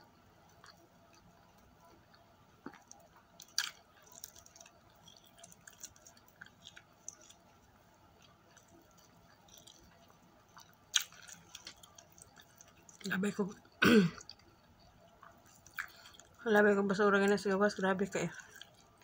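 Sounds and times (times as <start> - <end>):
crackle of fried food: 0.0 - 19.0
person chewing: 0.5 - 13.1, 14.2 - 16.4, 18.3 - 19.0
wet clicks and squishes: 2.6 - 7.5, 8.6 - 13.1, 15.2 - 16.4.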